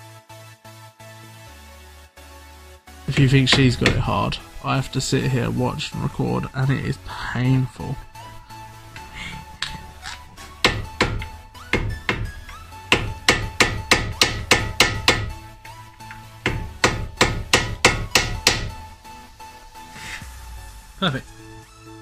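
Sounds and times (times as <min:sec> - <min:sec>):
hammer blows on metal: 0:03.1 - 0:04.4, 0:10.4 - 0:15.4, 0:16.0 - 0:19.0.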